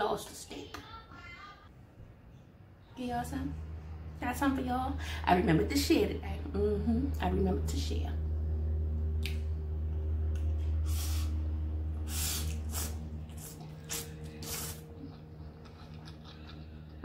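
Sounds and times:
steady low hum: 0:01.7 - 0:17.0
wet noodle slurps: 0:12.1 - 0:15.8.

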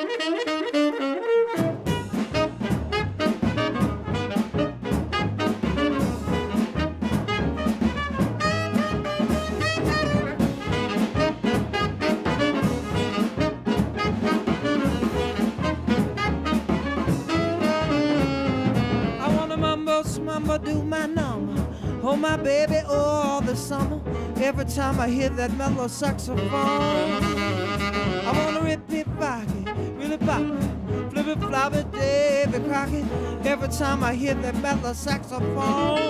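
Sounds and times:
tenor saxophone lead: 0:00.0 - 0:19.7, 0:26.3 - 0:33.2, 0:35.6 - 0:36.0
drums: 0:01.5 - 0:36.0
bass: 0:01.6 - 0:36.0.

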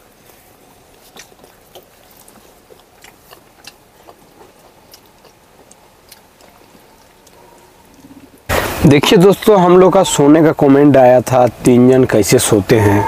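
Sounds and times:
eating with hands from steel plates: 0:00.0 - 0:08.8
chewing: 0:00.1 - 0:08.5.

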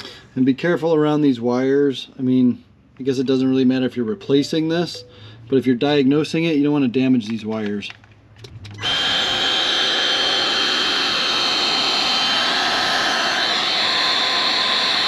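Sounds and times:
heat gun blowing with whine: 0:08.7 - 0:15.0.

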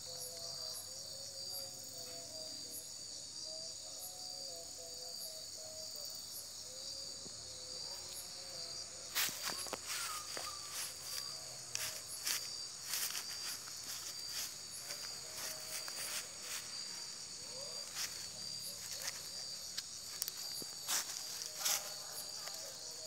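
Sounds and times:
crickets chirring: 0:00.0 - 0:23.0
dry grass rustling: 0:09.0 - 0:22.6.

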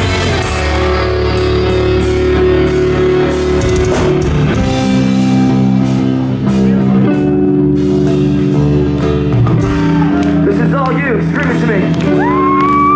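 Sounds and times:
drums and cymbals: 0:00.0 - 0:07.0
electric guitars holding notes: 0:00.0 - 0:12.9
live rock band: 0:00.0 - 0:12.9.

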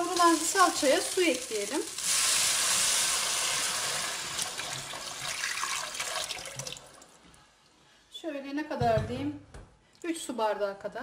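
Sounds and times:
water pouring into hot pot hissing: 0:00.0 - 0:07.0.

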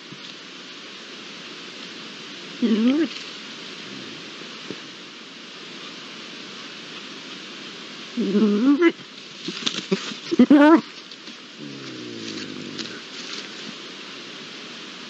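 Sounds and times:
steady background hiss: 0:00.0 - 0:15.0
lynx yowling: 0:11.6 - 0:13.0.

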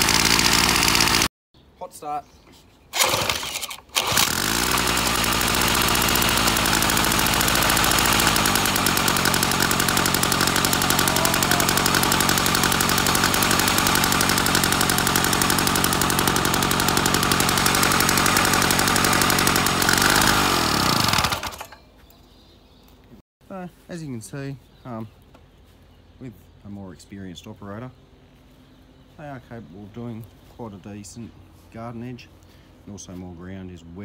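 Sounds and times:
two-stroke engine running: 0:00.0 - 0:01.3, 0:03.0 - 0:21.8
engine pull-start: 0:02.9 - 0:21.8.

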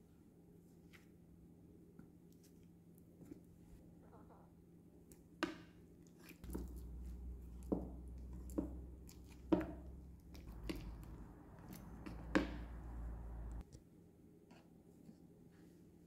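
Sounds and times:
squelching of mashed bananas: 0:06.1 - 0:13.6.

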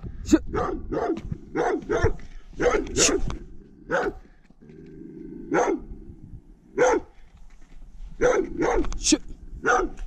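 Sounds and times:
dog barking: 0:00.5 - 0:03.3, 0:03.9 - 0:04.2, 0:05.5 - 0:05.8, 0:06.8 - 0:07.1, 0:08.2 - 0:08.9, 0:09.6 - 0:10.0.

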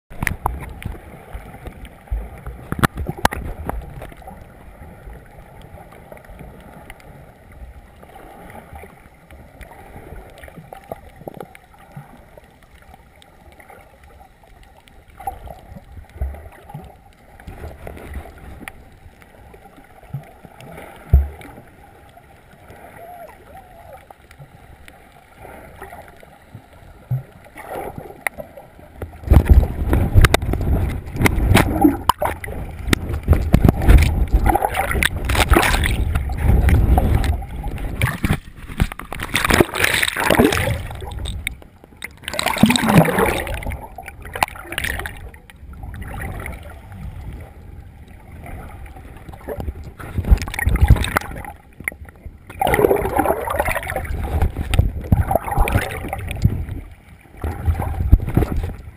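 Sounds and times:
muffled water sloshing: 0:00.1 - 0:58.9.

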